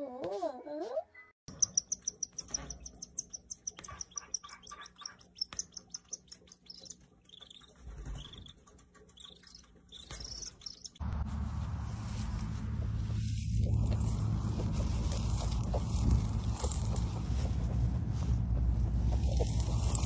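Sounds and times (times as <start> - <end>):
birds chirping: 1.5 - 11.0
steady low hum: 10.5 - 20.0.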